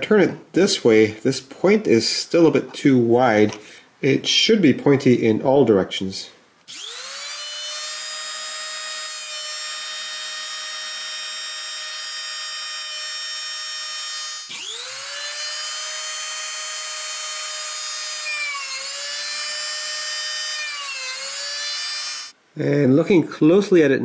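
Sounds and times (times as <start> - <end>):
rotary tool whining: 6.7 - 22.4.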